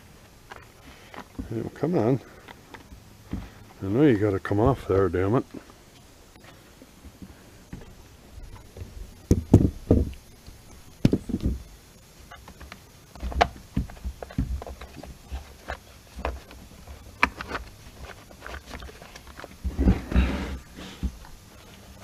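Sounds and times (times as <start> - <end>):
plastic cover knocks and clunks: 9.3 - 10.1, 13.2 - 15.2.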